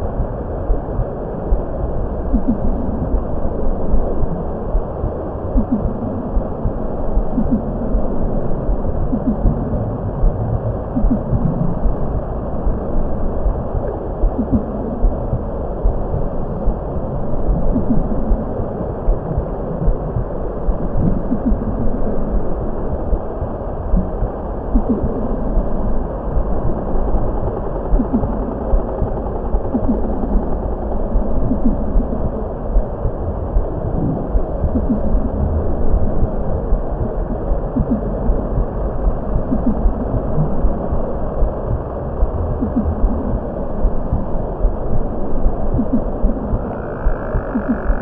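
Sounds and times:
low rumbling ambient drone: 0.0s - 48.0s
soft low thumps: 3.9s - 8.1s, 8.7s - 12.8s, 23.9s - 25.7s, 27.9s - 48.0s.

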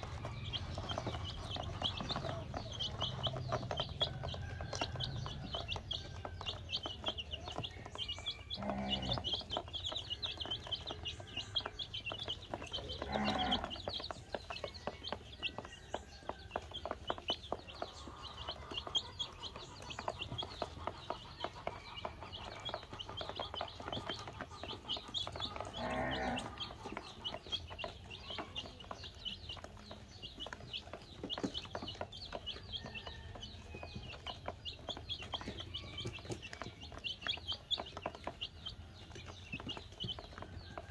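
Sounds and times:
baby chicks peeping: 0.0s - 40.9s.

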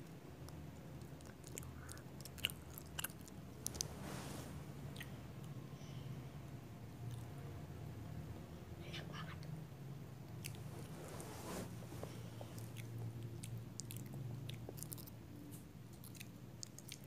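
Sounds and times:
low steady hum: 0.0s - 17.0s
person chewing a snack: 0.4s - 3.9s, 10.4s - 10.9s, 12.0s - 17.0s
wet mouth clicks: 12.5s - 15.2s, 16.0s - 17.0s.

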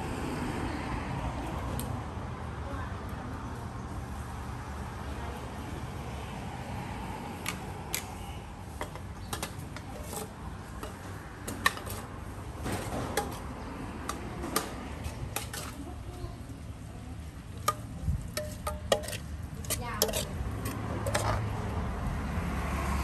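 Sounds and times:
utensils tapping bowls: 8.8s - 12.1s, 12.8s - 15.8s, 17.5s - 21.5s.

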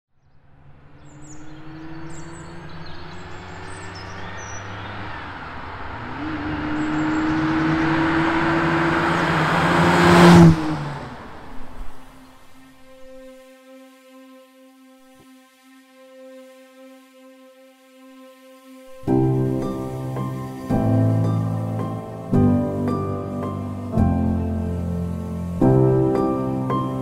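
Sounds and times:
sports car engine accelerating past: 0.3s - 12.9s, 19.0s - 27.0s.

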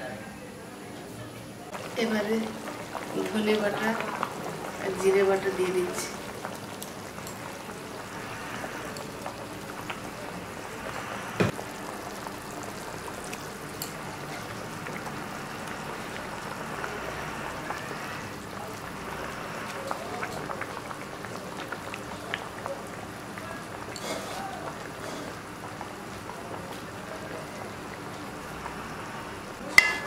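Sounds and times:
curry bubbling in a pan: 1.7s - 30.0s.

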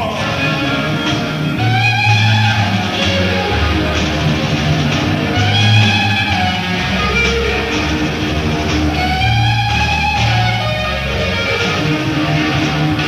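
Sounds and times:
bass guitar: 0.0s - 13.0s
drums: 0.0s - 13.0s
electric guitar lead lines: 0.0s - 13.0s.

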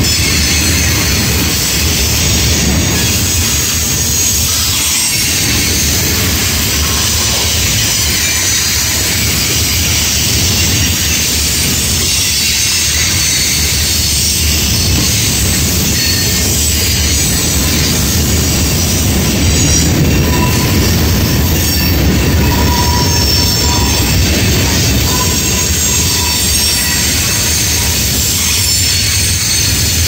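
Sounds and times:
train wheels rumbling on rail: 0.0s - 30.0s
faint wheel squeal: 19.5s - 30.0s.

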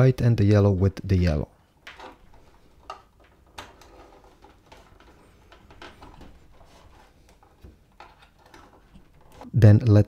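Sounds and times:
cable rustling: 0.8s - 9.5s.

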